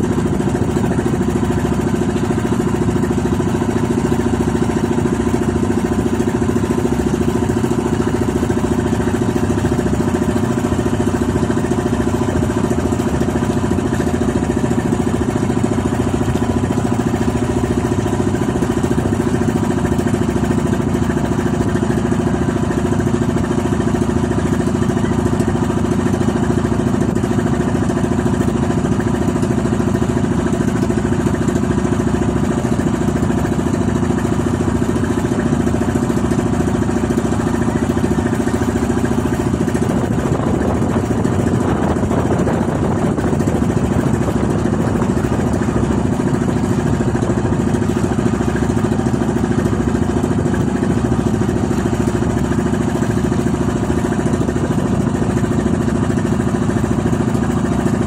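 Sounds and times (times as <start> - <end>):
boat engine running: 0.0 - 58.0.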